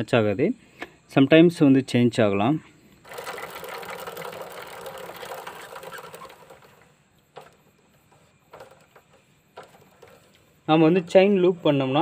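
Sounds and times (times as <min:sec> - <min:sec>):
bike chain whirring over sprockets: 0:03.0 - 0:10.6.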